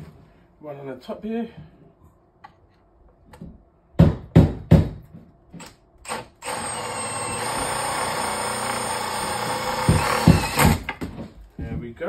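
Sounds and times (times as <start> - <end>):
sharp knocks: 3.4 - 5.2, 9.8 - 11.4
power drill whining: 6.0 - 10.9.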